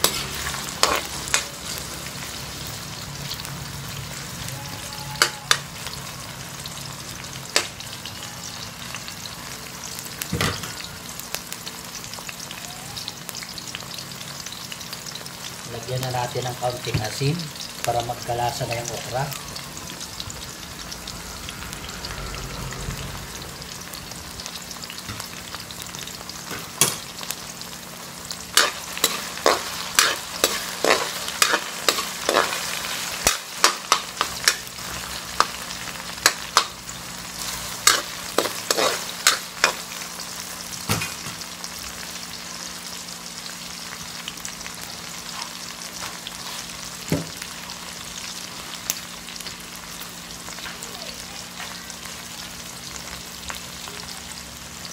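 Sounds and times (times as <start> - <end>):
spatula scraping a wok: 0.0 - 1.7, 28.5 - 40.4
okra sizzling in hot oil: 0.0 - 54.9.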